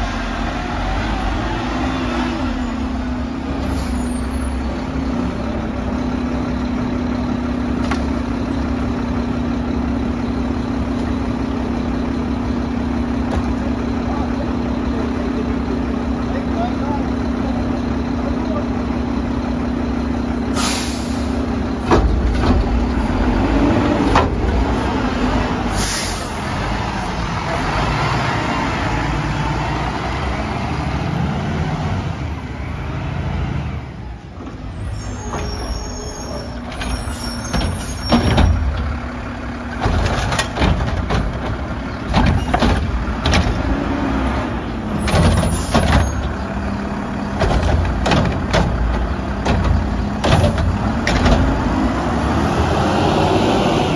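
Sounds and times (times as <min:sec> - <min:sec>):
garbage truck engine running: 0:00.0 - 0:53.9
knocks and bangs of carts dumping: 0:20.7 - 0:28.1, 0:34.4 - 0:52.7.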